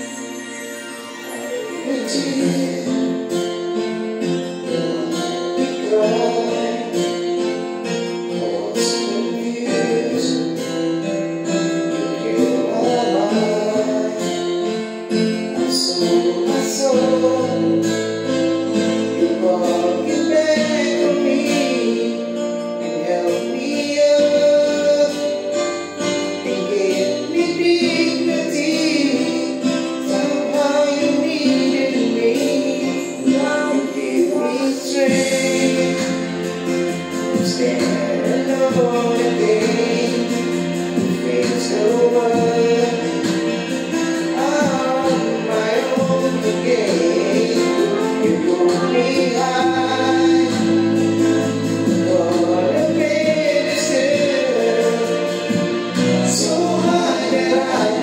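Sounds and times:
person singing: 0:00.0 - 0:58.0
strummed acoustic guitar: 0:00.0 - 0:58.0.

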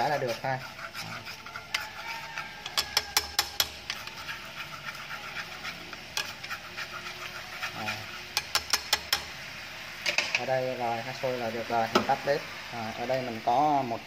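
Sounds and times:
chopsticks stirring: 0:00.0 - 0:09.4
thick sauce bubbling in a pan: 0:00.0 - 0:10.1.

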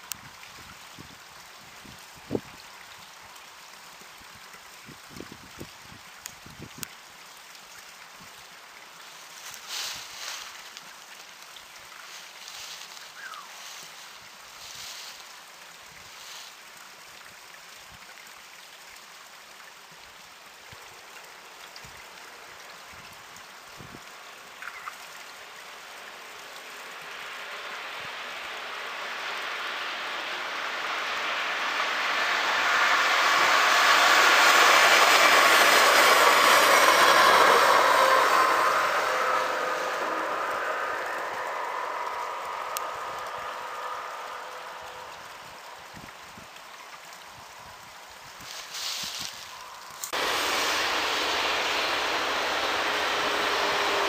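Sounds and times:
train passing on rails: 0:25.3 - 0:45.8, 0:49.5 - 0:54.0.

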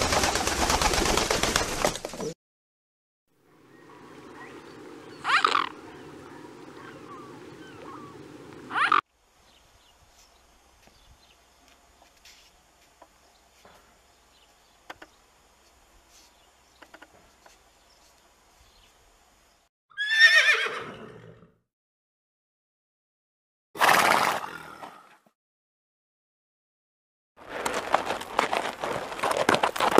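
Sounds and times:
short animal calls: 0:05.2 - 0:05.8, 0:06.8 - 0:09.0
horse whinnying: 0:19.9 - 0:21.5.

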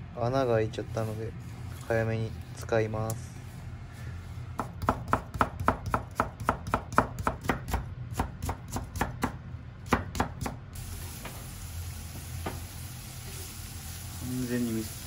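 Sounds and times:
knife chopping on wooden board: 0:04.6 - 0:10.6
vegetables sizzling in a pan: 0:10.8 - 0:15.0.

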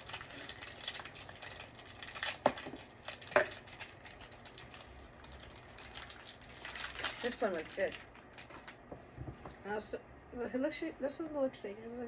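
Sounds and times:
snack packaging rustling: 0:00.0 - 0:08.8.

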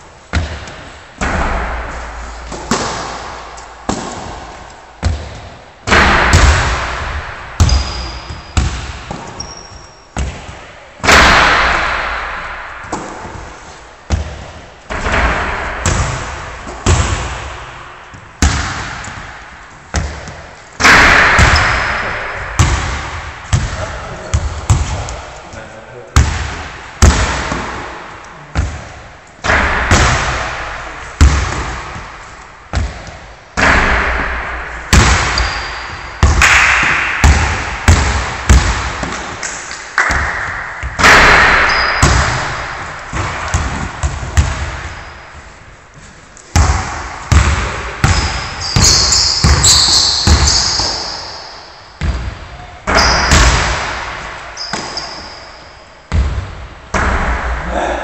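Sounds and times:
basketball hitting rim and backboard: 0:00.3 - 0:25.3, 0:26.2 - 0:45.6, 0:46.5 - 0:57.6
basketball bouncing on wooden floor: 0:03.9 - 0:10.7, 0:14.1 - 0:25.3, 0:26.2 - 0:30.5, 0:31.2 - 0:34.2, 0:34.9 - 0:39.4, 0:40.0 - 0:45.2, 0:46.5 - 0:51.3, 0:52.0 - 0:55.5, 0:56.1 - 0:57.3
sneaker squeaks: 0:07.6 - 0:10.7, 0:35.3 - 0:36.2, 0:41.5 - 0:42.6, 0:44.8 - 0:46.2, 0:48.0 - 0:53.6, 0:54.5 - 0:56.2.

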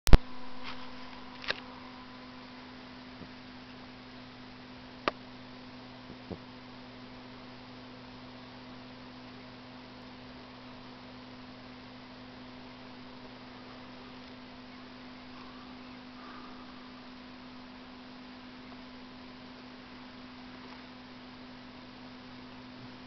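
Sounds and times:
faint steady hum: 0:00.1 - 0:23.0
light hiss: 0:00.2 - 0:23.0.

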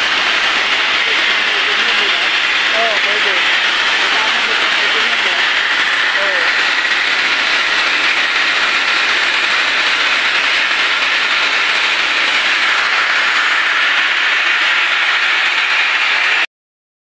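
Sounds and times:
steam hissing from valve: 0:00.0 - 0:16.5.

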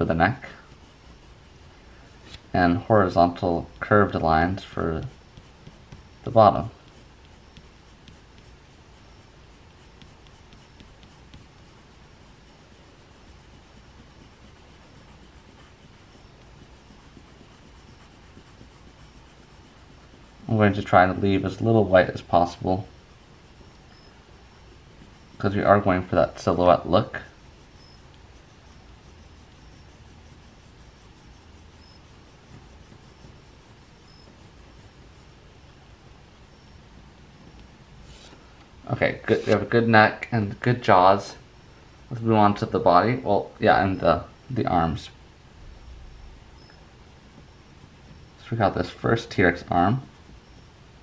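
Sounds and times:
pencil scratching on paper: 0:00.0 - 0:02.4, 0:03.1 - 0:35.4, 0:39.3 - 0:39.8, 0:46.5 - 0:51.0.

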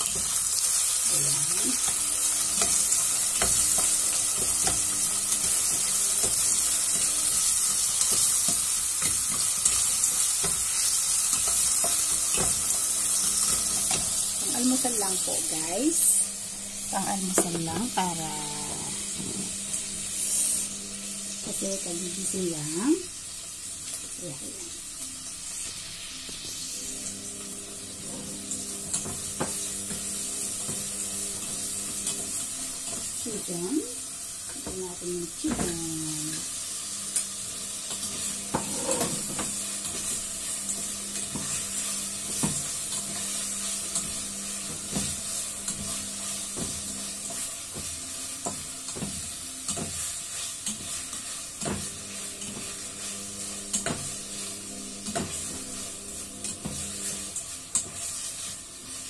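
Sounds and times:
food sizzling in oil: 0:00.0 - 0:59.0
spatula scraping and tapping pan: 0:01.8 - 0:14.2, 0:37.9 - 0:40.2, 0:40.8 - 0:55.8, 0:56.4 - 0:59.0.

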